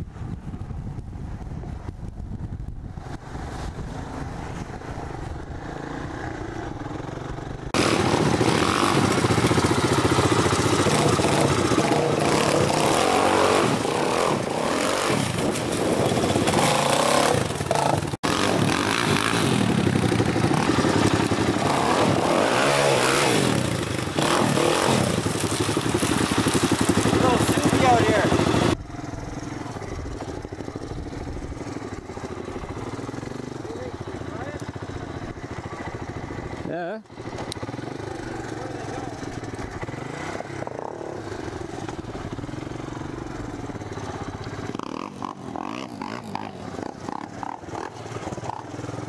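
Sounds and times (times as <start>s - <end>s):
three-wheeler engine running: 0.0s - 49.0s
quad bike engine revving: 5.4s - 49.0s
splashing through a creek: 7.8s - 28.8s.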